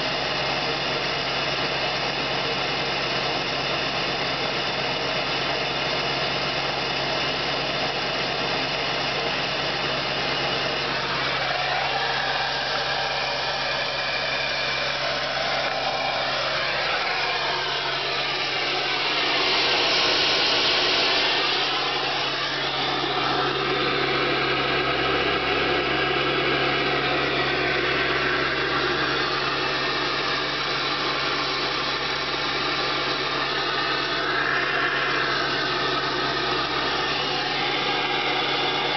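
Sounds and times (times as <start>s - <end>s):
diesel truck engine idling: 10.8s - 33.0s.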